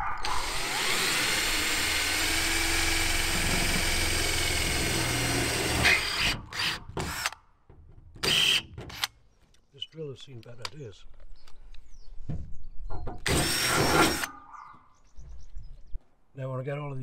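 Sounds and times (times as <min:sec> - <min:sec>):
cordless drill boring through metal: 0:00.0 - 0:07.4, 0:08.2 - 0:09.1, 0:13.2 - 0:14.3.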